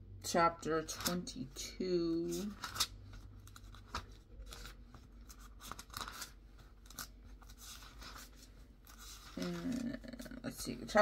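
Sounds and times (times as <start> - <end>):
thin pages rustling: 2.2 - 10.2.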